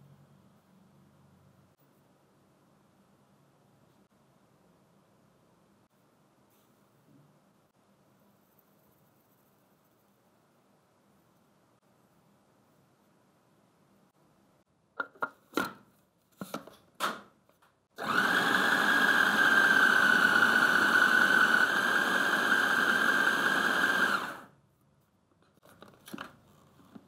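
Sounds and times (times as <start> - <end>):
food processor motor whining: 18.0 - 24.5.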